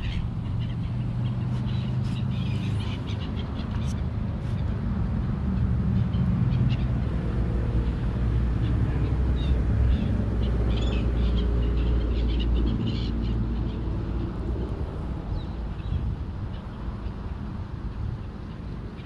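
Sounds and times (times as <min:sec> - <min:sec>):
bird calls: 0:00.0 - 0:04.7.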